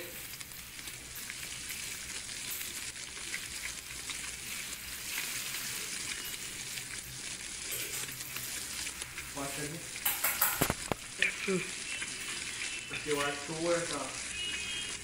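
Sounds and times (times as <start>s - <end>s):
hot plate sizzling: 0.0s - 15.0s.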